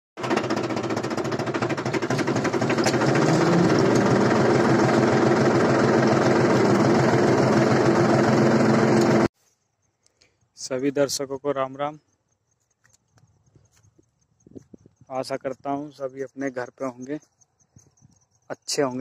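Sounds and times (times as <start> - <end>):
tractor engine running under load: 0.2 - 9.3.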